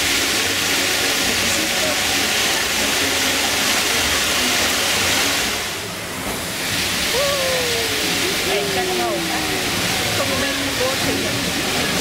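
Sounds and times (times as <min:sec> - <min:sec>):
water fountains spraying and splashing: 0:00.0 - 0:12.0.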